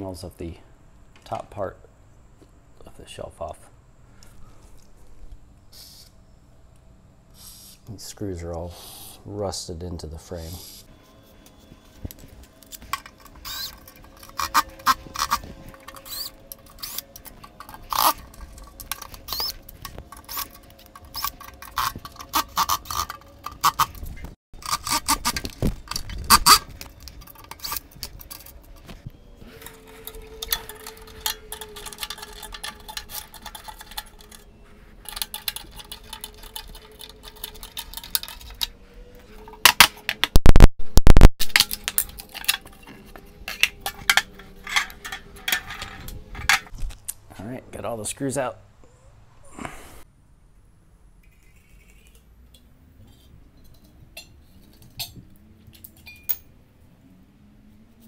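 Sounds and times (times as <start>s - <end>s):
clicks and rattles of metal: 12.0s - 40.4s, 41.4s - 46.7s.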